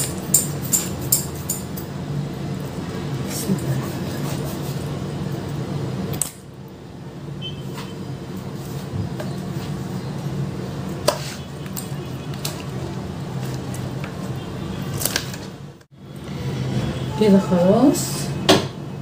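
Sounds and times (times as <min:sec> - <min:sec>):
kitchen utensils clicking: 0:00.0 - 0:01.9.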